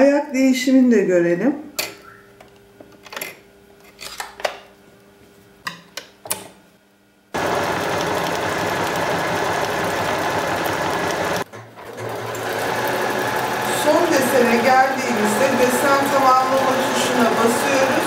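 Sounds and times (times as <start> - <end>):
sewing machine stitching whir: 7.4 - 18.0.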